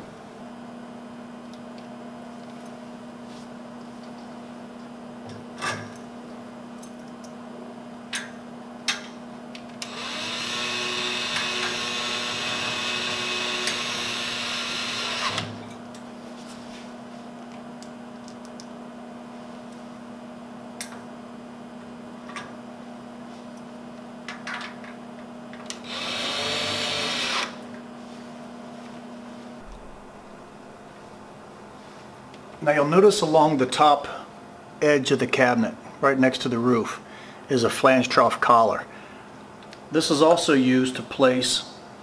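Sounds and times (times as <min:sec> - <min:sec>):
cordless screwdriver running: 0:09.8 - 0:15.5, 0:25.8 - 0:27.6.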